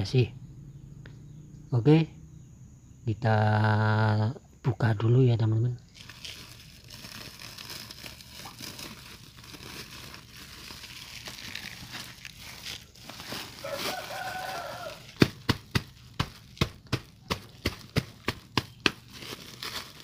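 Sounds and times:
plastic sack crinkling: 0:05.9 - 0:20.0
chicken calling: 0:13.4 - 0:15.2.

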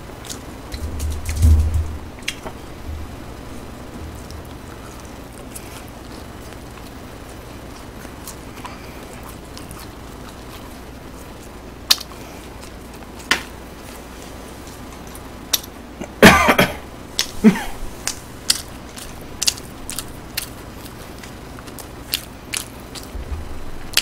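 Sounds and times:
person coughing: 0:16.0 - 0:17.8.

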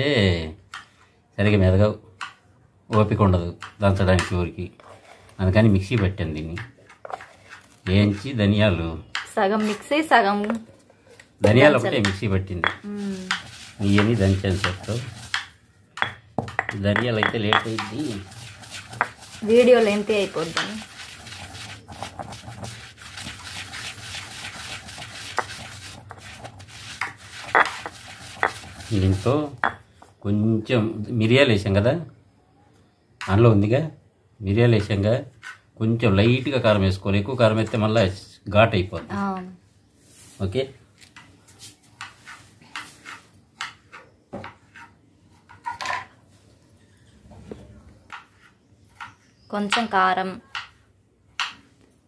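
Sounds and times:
pestle grinding in mortar: 0:11.4 - 0:30.1
stone knocking on stone: 0:11.5 - 0:18.1, 0:18.9 - 0:19.2, 0:24.8 - 0:30.1.

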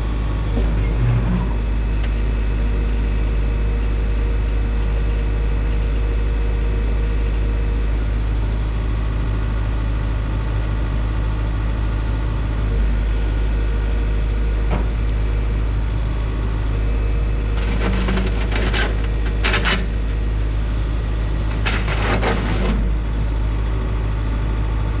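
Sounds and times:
excavator diesel engine running: 0:00.0 - 0:25.0
bucket crunching gravel: 0:17.4 - 0:20.3.

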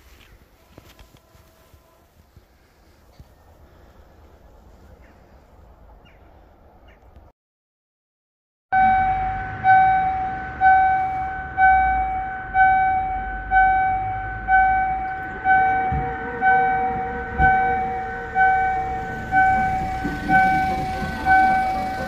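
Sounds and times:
level crossing bell dinging: 0:08.8 - 0:22.0.

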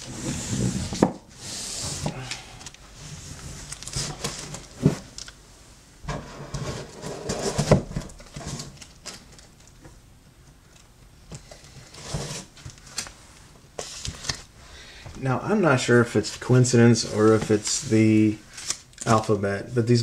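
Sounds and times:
comic books rustling: 0:01.7 - 0:05.3, 0:11.3 - 0:14.6, 0:15.2 - 0:20.0.

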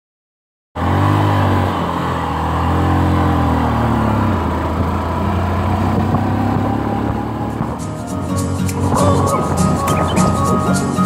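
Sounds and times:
road and wind noise: 0:00.8 - 0:11.0
vehicle engine running: 0:00.8 - 0:11.0.

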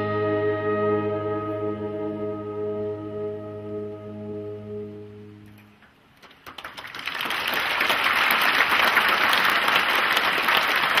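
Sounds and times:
saxophone ensemble chord: 0:00.0 - 0:05.8
audience applause: 0:06.2 - 0:11.0.

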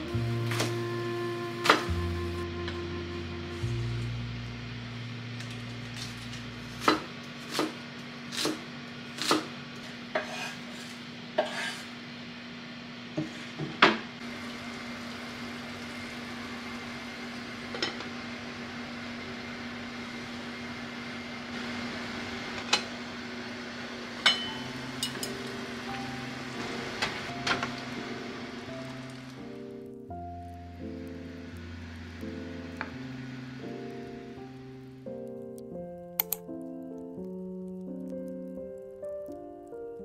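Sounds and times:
gas stove hiss: 0:00.0 - 0:40.0
utensils clinking on steel pot: 0:24.2 - 0:25.4.

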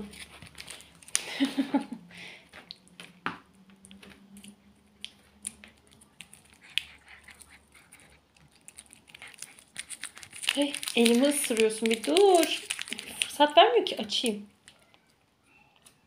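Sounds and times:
cat chewing a plastic wrapper: 0:00.0 - 0:01.4, 0:03.8 - 0:13.6.

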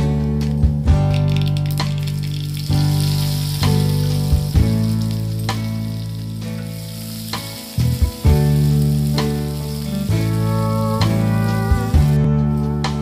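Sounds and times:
onions sizzling in oil: 0:02.1 - 0:12.2
instrumental music sustained notes: 0:02.3 - 0:13.0.

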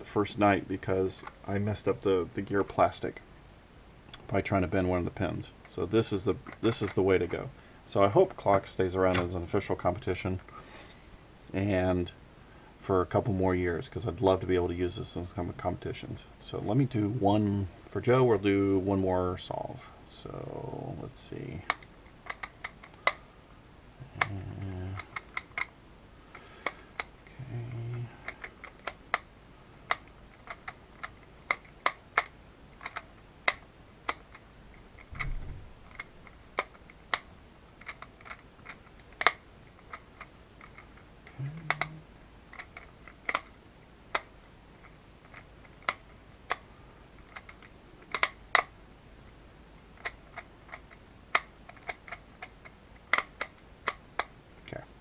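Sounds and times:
sharp irregular puzzle clicks: 0:05.6 - 0:07.4, 0:21.6 - 0:23.2, 0:24.1 - 0:41.9, 0:42.5 - 0:48.8, 0:49.8 - 0:54.4
soft low thuds: 0:35.1 - 0:35.8.

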